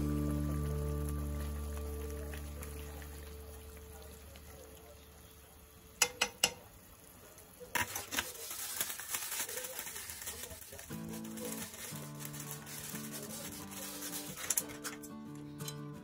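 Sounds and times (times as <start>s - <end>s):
plastic bag crackling: 7.7s - 15.2s.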